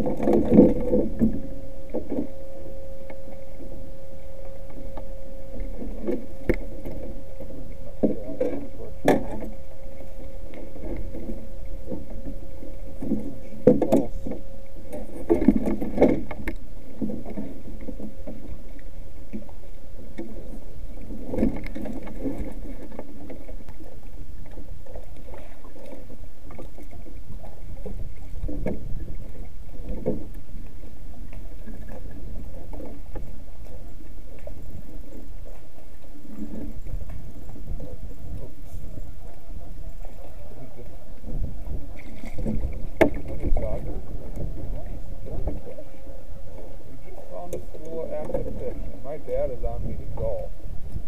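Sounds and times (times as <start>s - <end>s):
low rumble of wind and water: 0.0s - 51.0s
paddle knocking against canoe hull: 41.3s - 45.8s.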